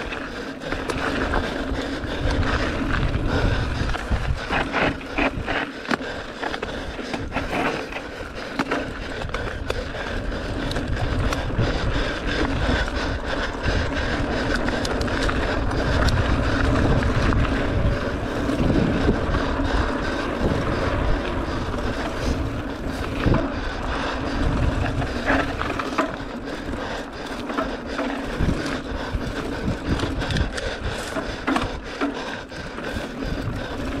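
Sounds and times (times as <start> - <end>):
bike rattles and clicks: 0.0 - 34.0
bike tyre rolling on dirt: 0.0 - 34.0
wind buffeting microphone: 0.0 - 34.0.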